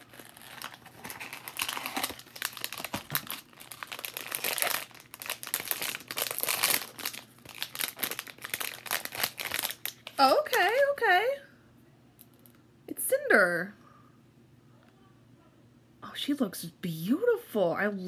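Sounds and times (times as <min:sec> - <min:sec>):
foil wrapper crinkling and tearing: 0:00.0 - 0:10.9.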